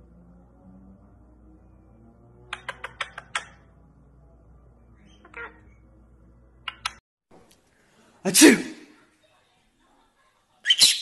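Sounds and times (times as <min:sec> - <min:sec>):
parakeet clicking: 0:02.5 - 0:03.6.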